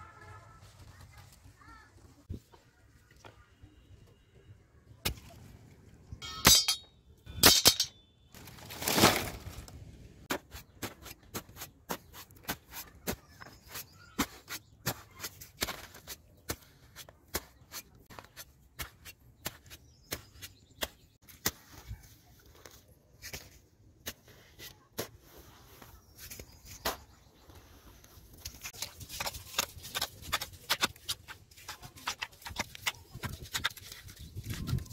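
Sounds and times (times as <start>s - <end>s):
stick jabbing wet mud: 28.4s - 34.9s.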